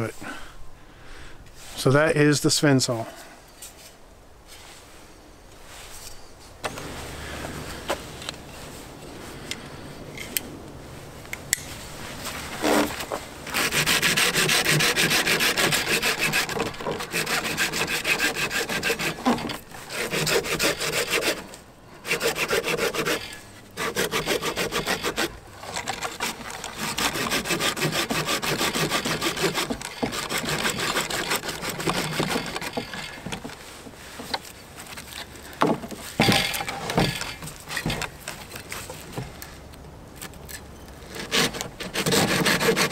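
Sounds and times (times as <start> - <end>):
saw handling: 11.4 - 39.4, 40.2 - 42.9
saw cutting through branch: 12.2 - 35.4, 36.0 - 38.9, 41.0 - 42.9.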